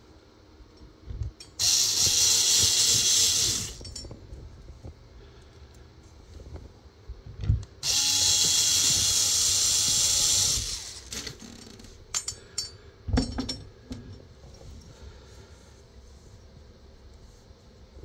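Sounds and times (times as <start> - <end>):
cordless screwdriver motor: 1.6 - 3.8, 7.8 - 11.5
sharp knocks and clinks: 12.1 - 13.7.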